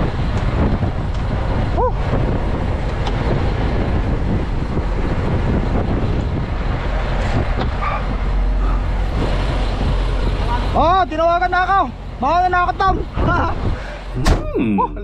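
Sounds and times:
diesel truck engine running: 0.0s - 15.0s
truck door clicks and knocks: 14.2s - 14.5s.

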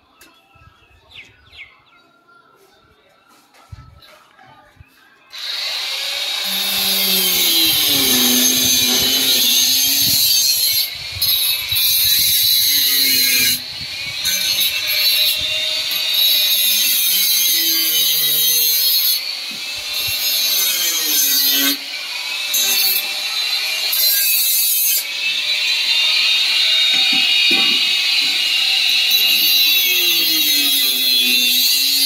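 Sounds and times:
power tool high-pitched noise: 5.3s - 32.0s.

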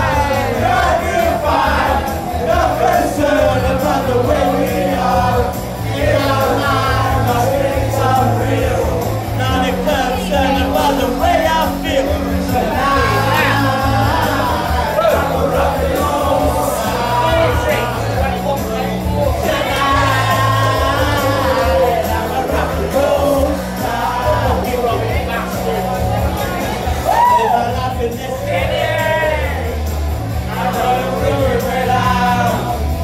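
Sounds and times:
man singing into a microphone: 0.0s - 25.9s
loud backing track: 0.0s - 33.0s.

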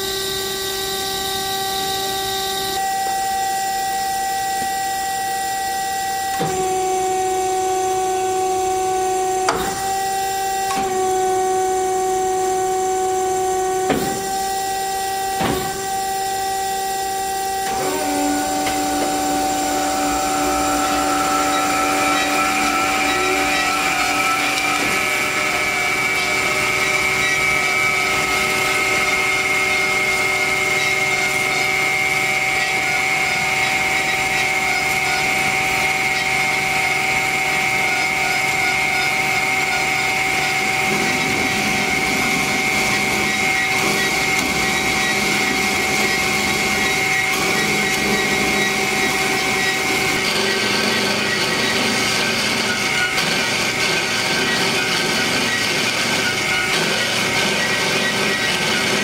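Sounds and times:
band saw running: 0.0s - 59.0s.

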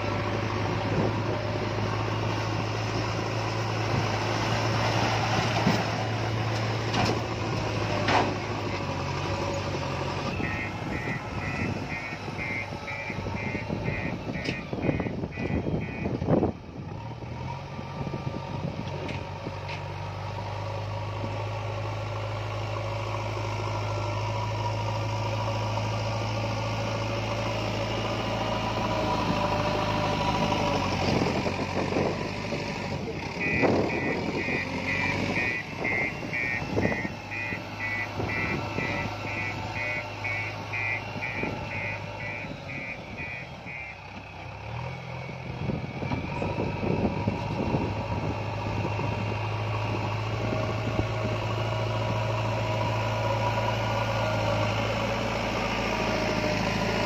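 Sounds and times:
diesel engine running: 0.0s - 57.0s
reversing alarm beeping: 10.3s - 16.2s, 33.4s - 44.0s.

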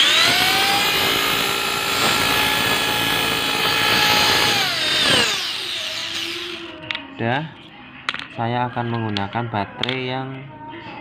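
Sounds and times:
small motor whining: 0.0s - 6.7s.

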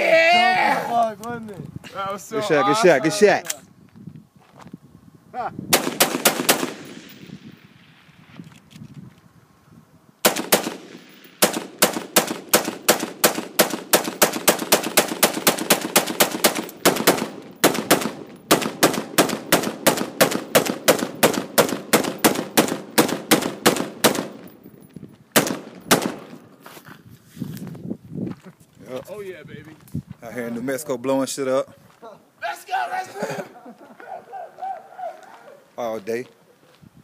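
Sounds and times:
rifle shots: 5.7s - 8.0s, 10.2s - 24.6s, 25.4s - 26.5s.

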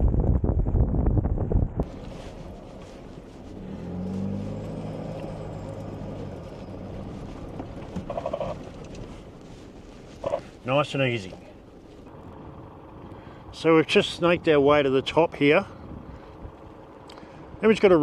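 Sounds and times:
wind buffeting microphone: 0.0s - 3.2s
truck driving on dirt track: 1.5s - 18.0s.

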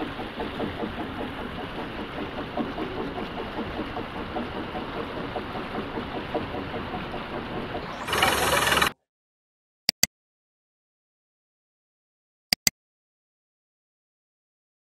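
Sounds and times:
drilling rig engine running: 0.0s - 8.9s
water gushing in a high jet: 0.0s - 8.9s.

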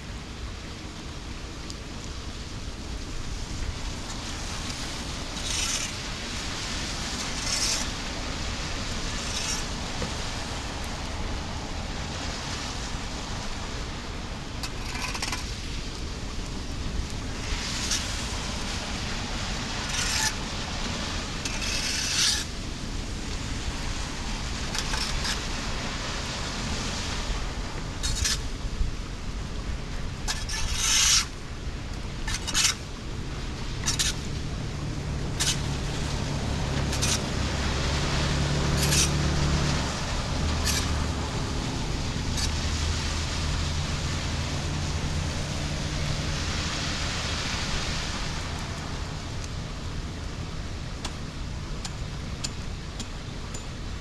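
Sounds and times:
rain on concrete road: 0.0s - 54.0s
low vehicle engine hum: 33.0s - 52.8s.

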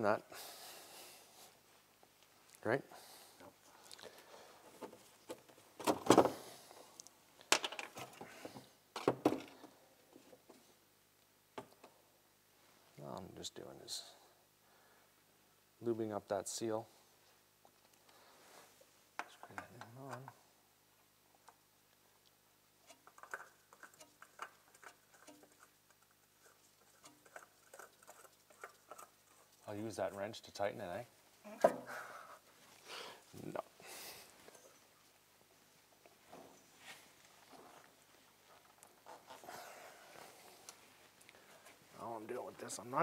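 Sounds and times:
objects knocking and rattling: 7.5s - 10.6s, 22.8s - 29.2s
oil filter clicking and scraping: 22.8s - 29.7s.

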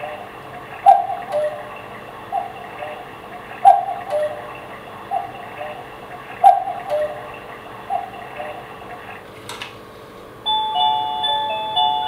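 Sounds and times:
electronic clock melody: 0.0s - 8.8s, 10.4s - 12.0s
electronic cuckoo call: 0.0s - 8.8s.

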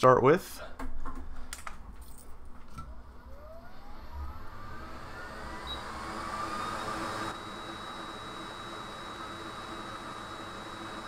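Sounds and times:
hot air blower whirring: 3.1s - 11.0s.

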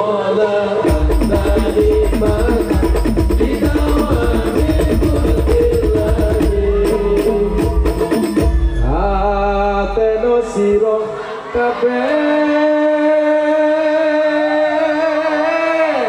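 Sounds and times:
men singing into microphones: 0.0s - 16.0s
hand drums: 0.9s - 9.1s.

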